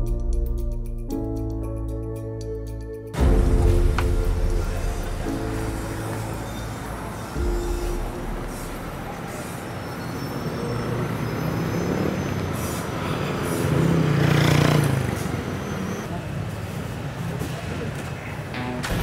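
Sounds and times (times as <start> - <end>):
street traffic: 3.2 - 19.0
vehicle passing close: 4.0 - 16.3.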